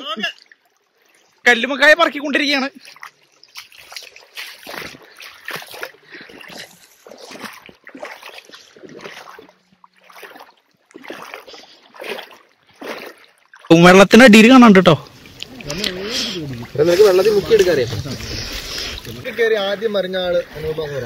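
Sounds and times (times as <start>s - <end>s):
lake water splashing: 0.0s - 21.0s.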